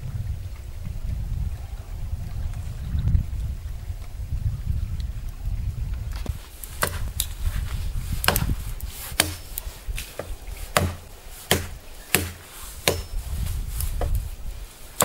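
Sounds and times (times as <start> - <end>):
chopping wood by hand: 6.8 - 7.2, 8.2 - 13.2.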